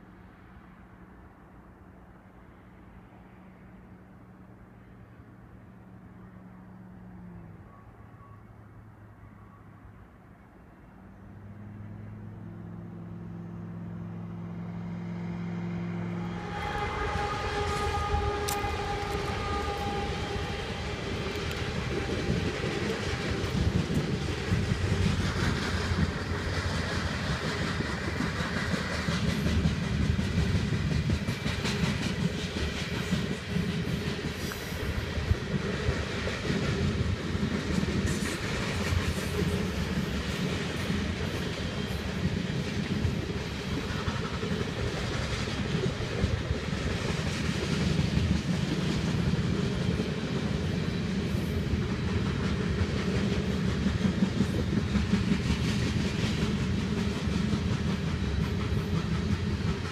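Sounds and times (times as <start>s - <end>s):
train wheels clattering over rail joints: 16.5s - 59.9s.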